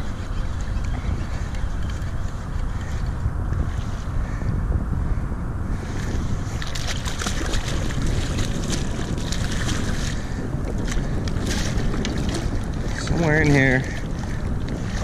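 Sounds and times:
wind buffeting microphone: 0.0 - 15.0
water sloshing: 6.5 - 15.0.

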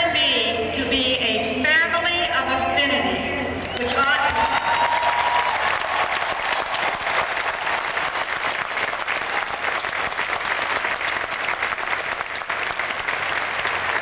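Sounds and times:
crowd applauding: 3.6 - 14.0.

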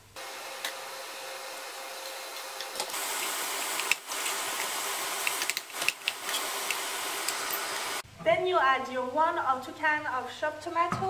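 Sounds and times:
meat sizzling in a frying pan: 2.9 - 8.0.

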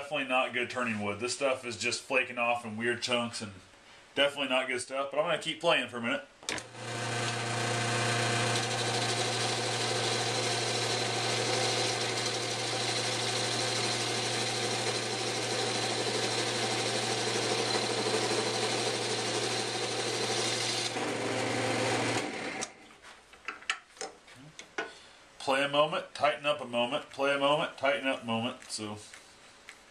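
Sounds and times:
turning tool cutting wood: 6.5 - 22.8
lathe motor hum: 6.6 - 22.7.

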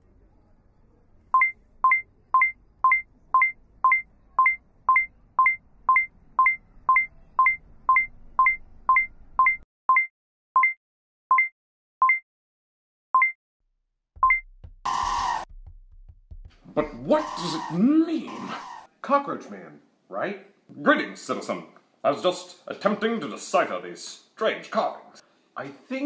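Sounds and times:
electronic alert beeping: 1.4 - 12.2, 14.2 - 14.5.

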